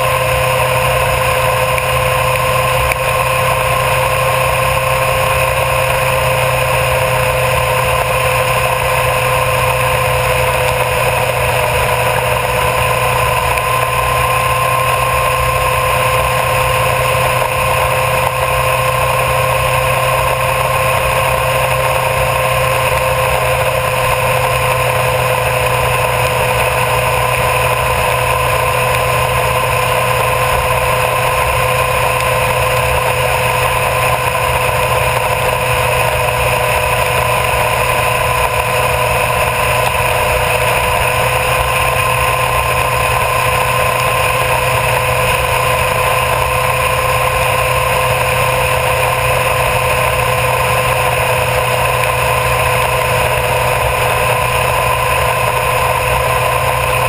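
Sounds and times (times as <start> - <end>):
motorcycle engine cruising: 0.0 - 57.0
wind and road noise: 0.0 - 57.0.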